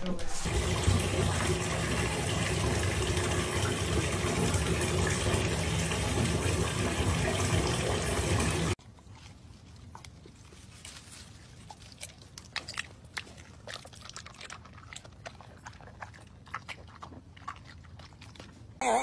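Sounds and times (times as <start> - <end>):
dog chewing and crunching: 8.8 - 18.8.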